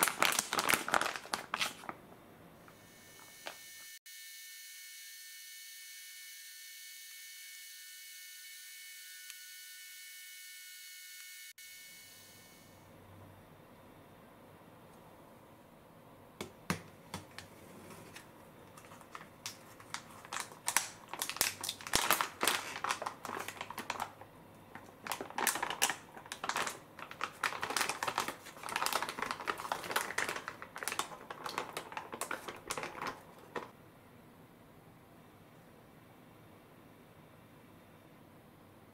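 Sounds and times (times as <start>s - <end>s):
plastic pouch crinkling: 0.0s - 2.0s, 18.7s - 33.7s.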